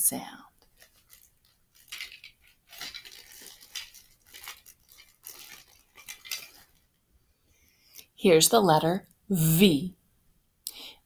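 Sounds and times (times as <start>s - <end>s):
plastic toy letters clattering: 0.8s - 6.8s.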